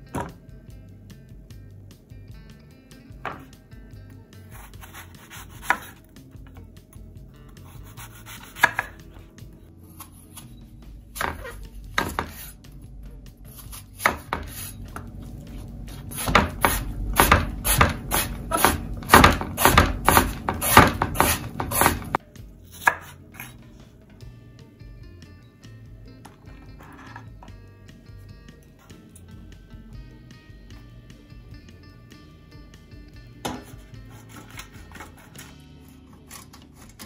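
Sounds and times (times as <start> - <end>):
knife chopping on wooden board: 3.2 - 3.5, 4.6 - 6.0, 8.0 - 9.0, 11.2 - 12.5, 13.6 - 15.1, 15.9 - 22.2, 22.8 - 23.6.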